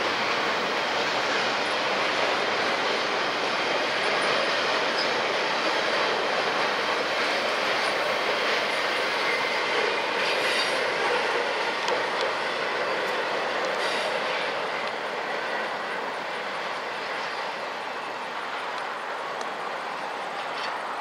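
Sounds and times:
freight train wheels on rail: 0:00.0 - 0:21.0.

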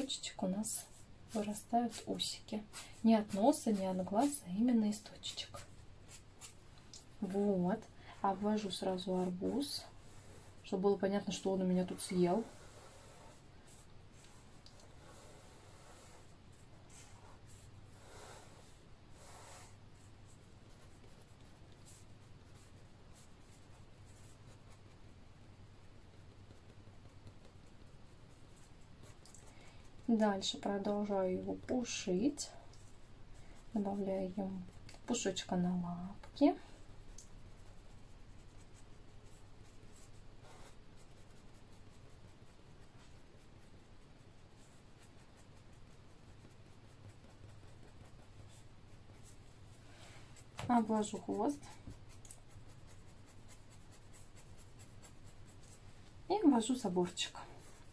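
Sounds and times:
low steady hum: 0:00.0 - 0:57.9
pen scratching on paper: 0:00.8 - 0:06.6, 0:08.3 - 0:25.0, 0:37.4 - 0:49.5, 0:50.4 - 0:55.8.

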